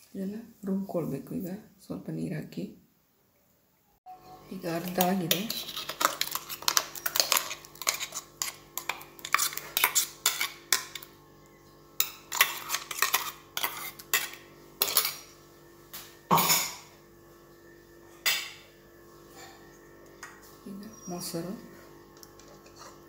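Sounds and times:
metal spoon scraping in jar: 4.8s - 11.0s, 12.3s - 15.2s.

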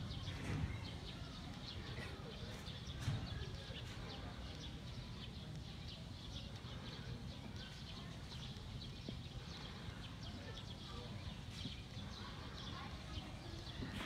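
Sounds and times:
animals chewing grass: 3.8s - 14.0s.

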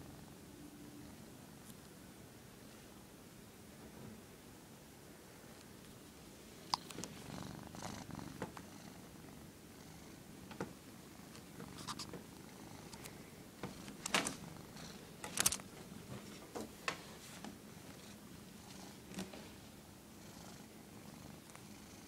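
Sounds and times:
cat purring: 6.5s - 16.4s, 17.6s - 22.0s
scratchy rustles: 11.6s - 12.2s.

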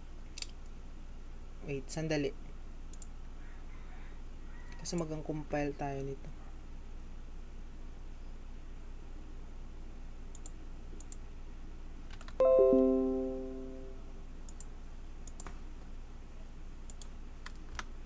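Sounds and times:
faint mouse clicks: 2.9s - 3.2s, 10.3s - 11.2s, 14.4s - 15.6s, 16.8s - 17.9s
computer notification chime: 12.4s - 14.1s.

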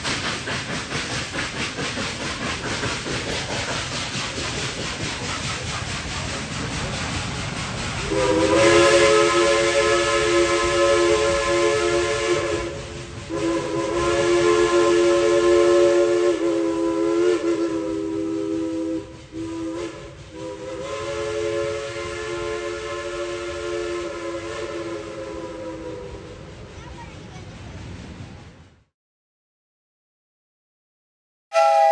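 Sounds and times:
steam hissing: 0.0s - 28.7s
steam locomotive whistle: 8.0s - 26.6s, 31.5s - 31.9s.

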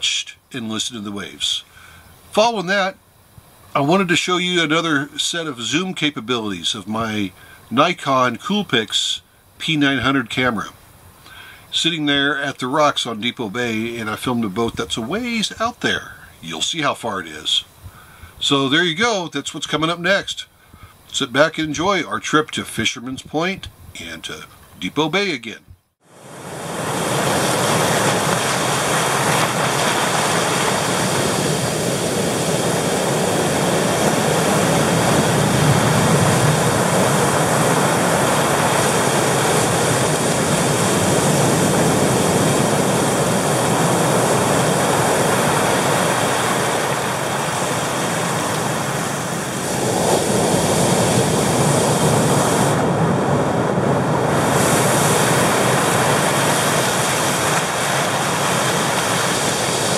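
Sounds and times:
surf breaking over rocks: 26.0s - 59.9s.

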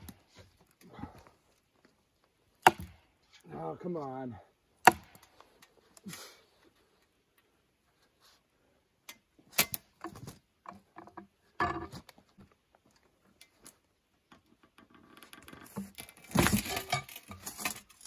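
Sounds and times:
log bumping: 0.0s - 3.1s.

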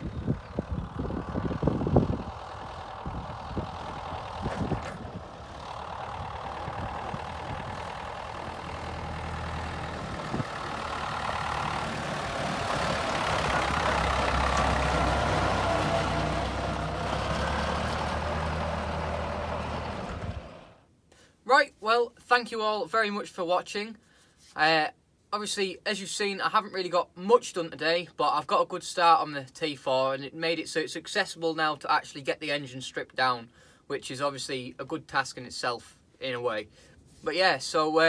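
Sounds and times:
tractor engine running: 0.0s - 20.8s.

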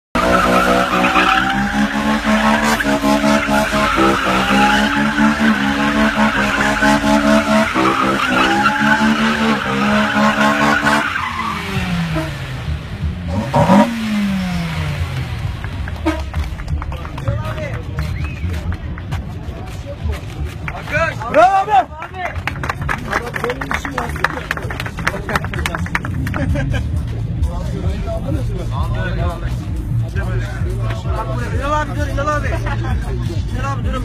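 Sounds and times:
tyres screeching: 0.1s - 12.6s
car engine at high revs: 0.1s - 17.0s.

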